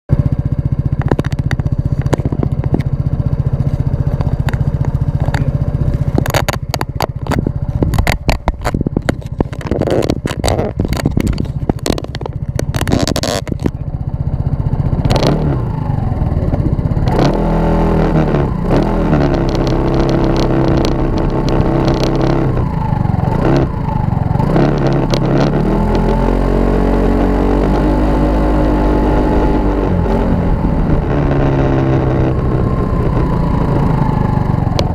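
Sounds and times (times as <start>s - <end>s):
scooter engine idling and revving: 0.1s - 34.9s
sharp knocks and clatter: 0.9s - 3.0s, 3.6s - 13.8s.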